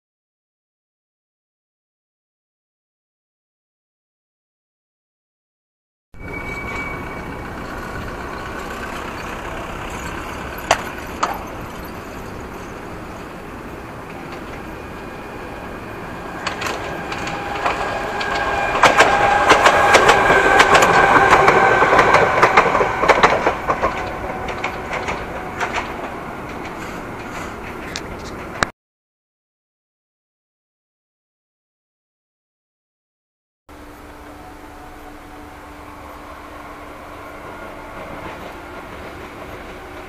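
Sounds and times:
train passing: 6.2s - 28.7s, 33.7s - 40.0s
train whine: 6.2s - 28.7s, 33.7s - 40.0s
wheels clattering over rail joints: 6.2s - 28.7s, 37.4s - 40.0s.

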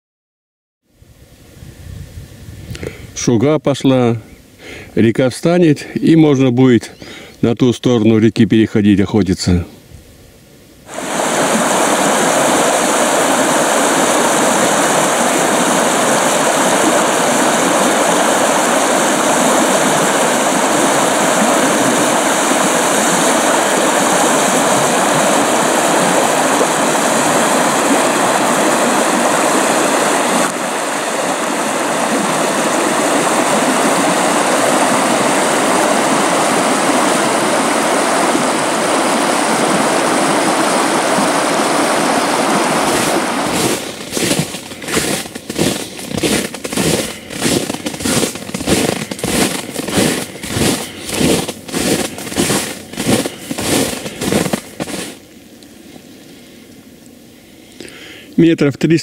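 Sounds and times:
river rushing over shallows: 10.8s - 56.0s.

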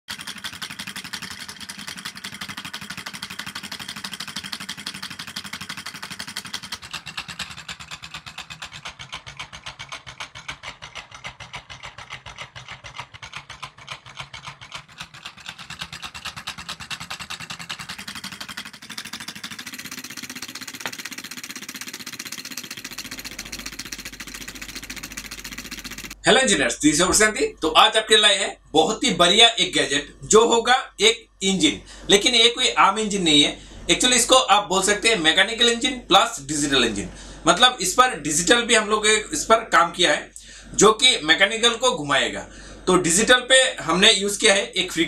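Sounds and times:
solenoid engine clattering rattle: 0.0s - 26.2s.

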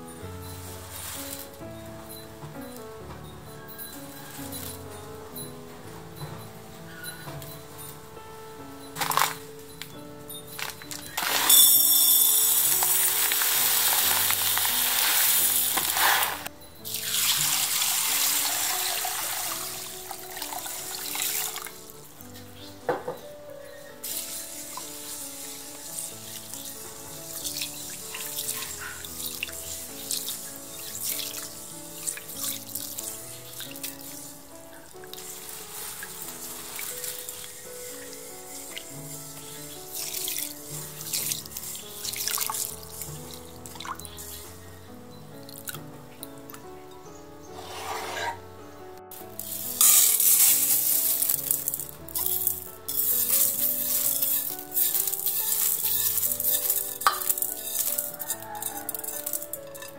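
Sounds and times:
wet beans pouring into metal pot: 0.5s - 1.6s, 9.0s - 9.5s, 10.6s - 21.9s, 24.0s - 34.4s, 35.0s - 44.5s, 49.1s - 59.9s
water splashing in a bowl: 10.6s - 21.9s, 35.0s - 44.5s, 49.4s - 59.9s.

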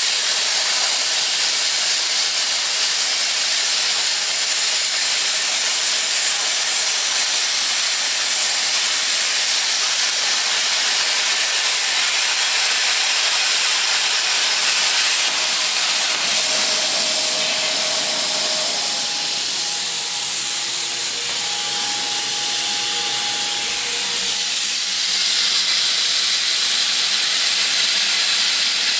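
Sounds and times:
plasma cutter hissing: 0.0s - 28.9s
faint whining tones: 14.0s - 24.8s.

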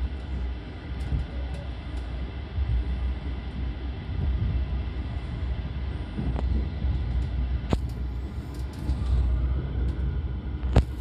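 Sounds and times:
train wheels rumbling on track: 0.0s - 11.0s.

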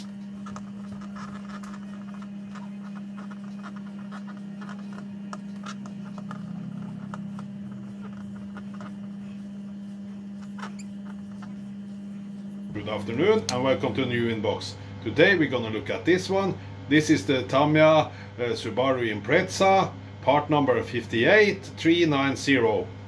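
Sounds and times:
marker squeaking on whiteboard: 0.0s - 13.7s
steady low hum: 0.0s - 23.0s.

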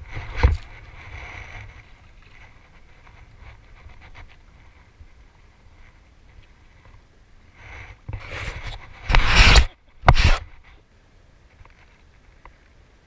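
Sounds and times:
cloth rustling against microphone: 0.0s - 7.0s, 7.6s - 10.8s.

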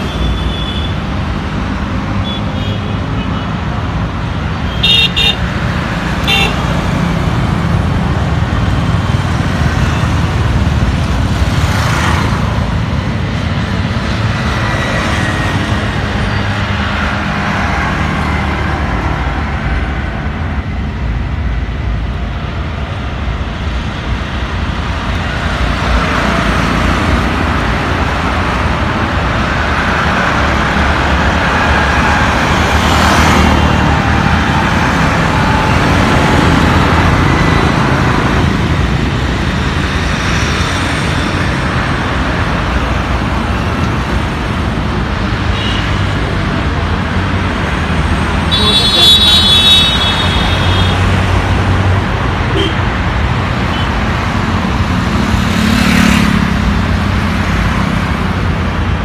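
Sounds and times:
traffic rumble: 0.0s - 59.0s
vehicles swishing past: 2.9s - 59.0s
vehicle horn beeping: 6.2s - 6.6s, 48.5s - 51.0s, 52.5s - 52.8s.

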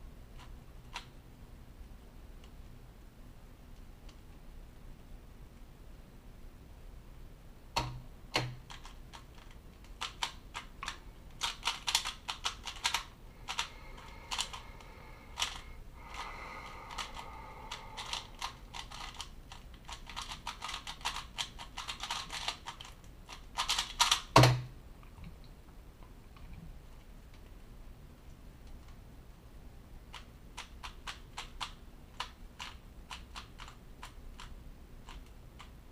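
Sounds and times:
plastic cube clicking and clacking: 8.4s - 14.6s, 15.3s - 16.2s, 16.9s - 24.5s, 30.1s - 35.8s.

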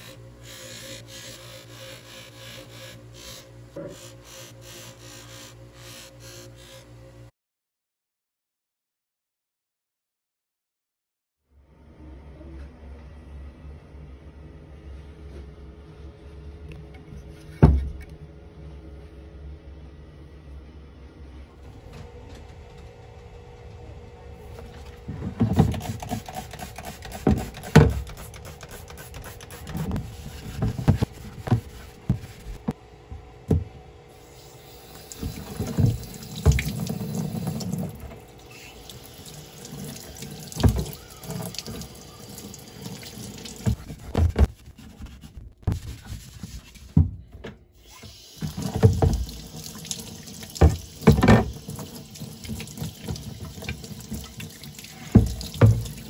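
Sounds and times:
scrubbing wood: 25.2s - 32.8s
knocks and bumps in sink: 33.5s - 33.7s, 48.5s - 49.3s, 50.6s - 51.6s, 55.1s - 56.0s
tap water running into sink: 34.9s - 43.8s, 48.0s - 56.0s.

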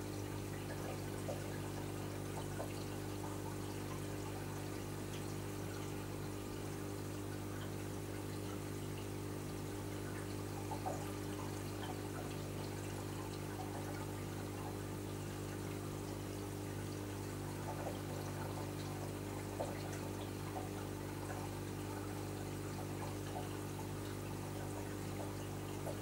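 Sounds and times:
low pump hum: 0.0s - 26.0s
water trickling and splashing: 0.2s - 26.0s
faint bubbly crackles: 10.0s - 16.0s, 17.2s - 23.7s.

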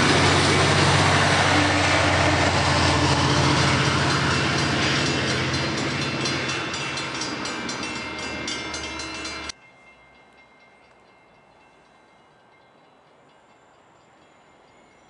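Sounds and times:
train wheels clicking on track: 0.0s - 12.2s.

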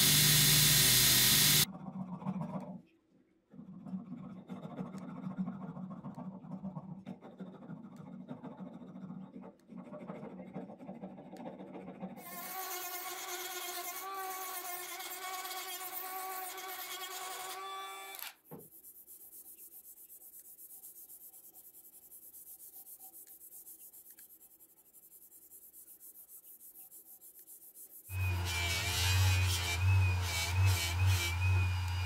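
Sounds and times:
rotary tool grinding: 0.0s - 1.7s, 12.2s - 18.4s, 28.1s - 32.0s.

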